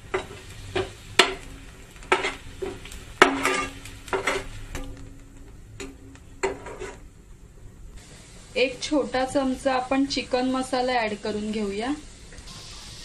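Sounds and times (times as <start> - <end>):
spatula scraping a pan: 0.0 - 4.9, 6.4 - 7.1
onions sizzling in oil: 0.0 - 7.2, 7.9 - 13.0.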